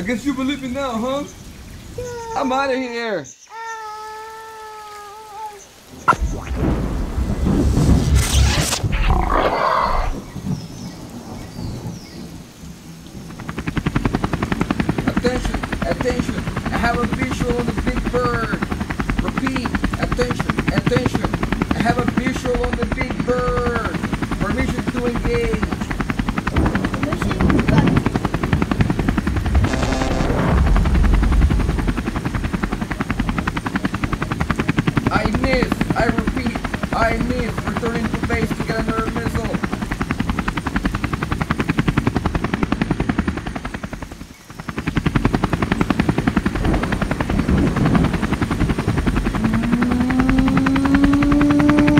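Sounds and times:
helicopter rotor chop: 6.0s - 10.6s, 13.1s - 51.9s
deep loud rumble: 6.1s - 10.6s, 26.5s - 32.8s.

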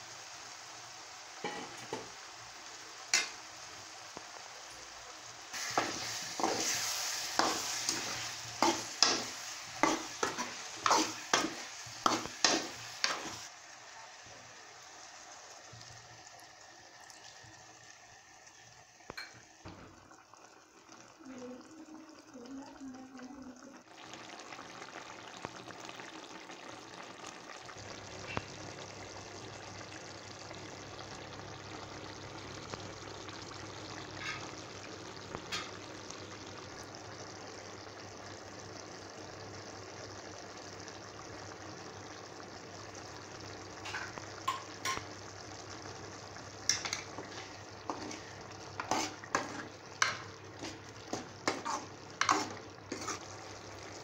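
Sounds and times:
gravy bubbling and sizzling: 0.0s - 54.0s
ladle knocking and scraping pan: 48.8s - 53.2s.

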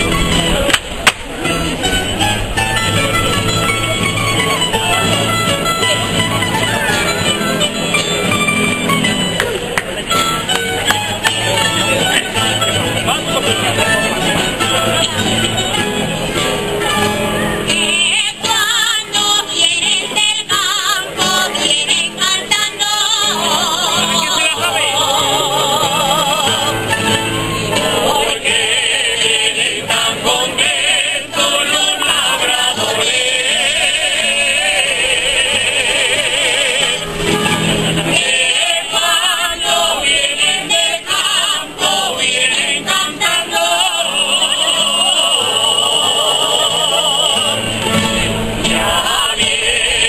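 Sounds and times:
plucked lute: 0.0s - 50.0s
strummed guitars: 0.0s - 50.0s
voices singing with vibrato: 16.8s - 50.0s.

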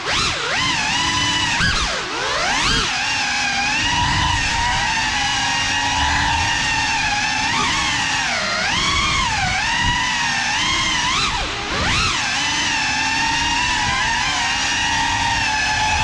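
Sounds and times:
quadcopter propellers whining: 0.0s - 16.0s.

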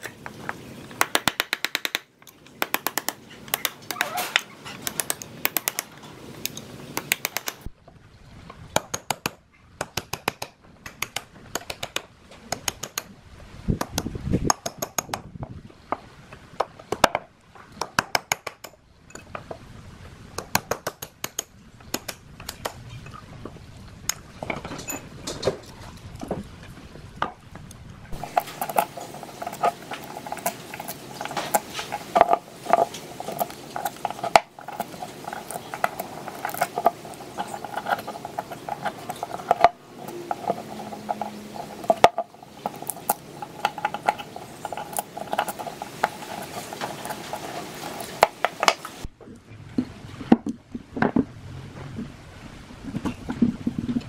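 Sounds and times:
hand tools clicking and scraping metal: 0.0s - 7.7s, 8.8s - 13.1s, 28.1s - 49.1s
faint steady hum: 0.0s - 54.0s.

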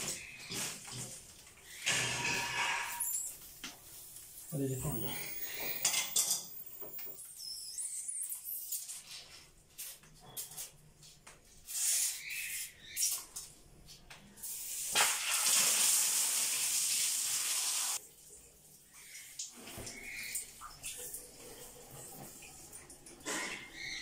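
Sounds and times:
water spraying under pressure: 14.4s - 18.0s.

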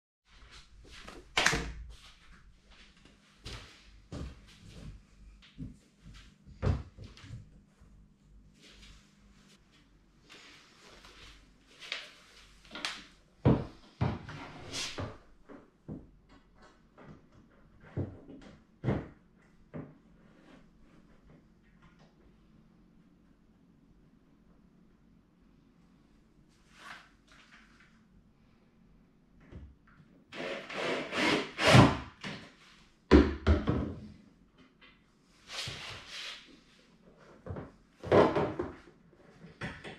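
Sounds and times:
knocks on cabinet: 33.1s - 34.0s.

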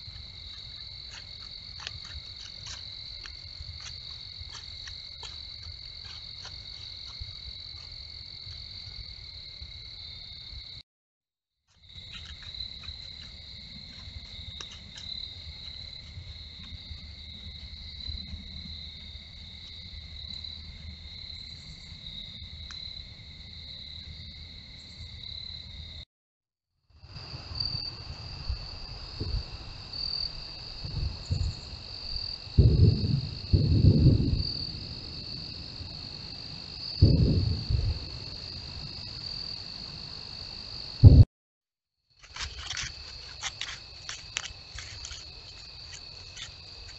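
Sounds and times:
crickets chirping: 0.0s - 10.8s, 11.7s - 26.0s, 26.9s - 41.3s, 42.1s - 46.9s
loud low thumps: 32.6s - 34.4s, 37.0s - 38.2s, 41.0s - 41.3s.

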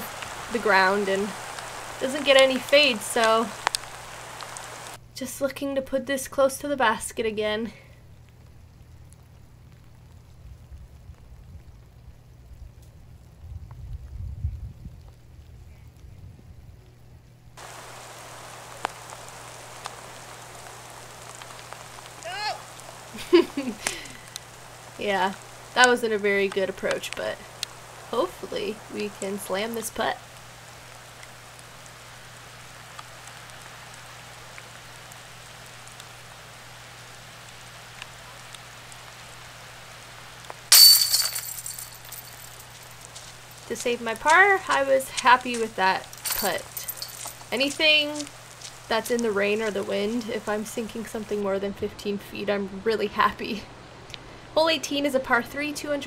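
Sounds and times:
steady rain falling: 0.0s - 56.0s
light drips: 17.6s - 36.3s, 40.4s - 50.8s
disc striking metal chains: 40.7s - 42.8s, 46.2s - 47.4s.

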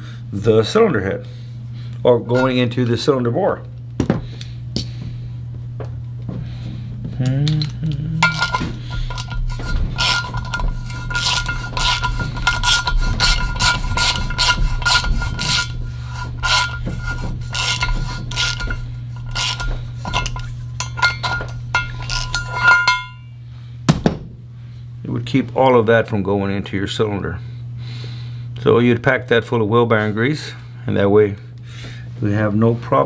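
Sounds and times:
hand ratchet clicking: 7.2s - 23.2s
faint steady ring: 8.2s - 23.4s.

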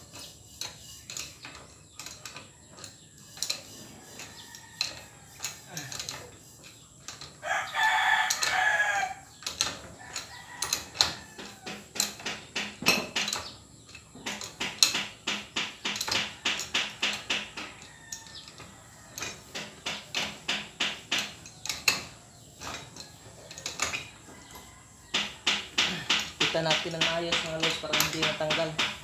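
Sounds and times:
metal clicks of hand tools: 0.0s - 7.4s, 8.2s - 29.0s
rooster crowing: 7.4s - 9.3s, 9.9s - 11.9s, 17.6s - 19.6s, 24.0s - 26.1s.

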